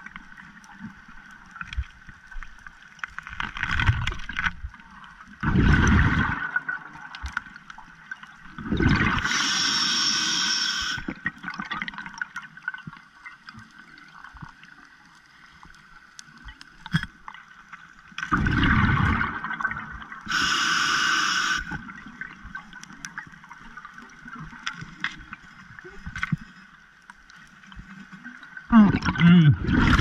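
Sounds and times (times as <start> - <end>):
underwater clicks and crackles: 0.0 - 30.0
gurgling rush of exhaled bubbles: 5.4 - 7.0, 8.6 - 9.8, 18.3 - 21.9, 28.7 - 30.0
hissing regulator breath: 9.2 - 11.1, 20.3 - 21.8.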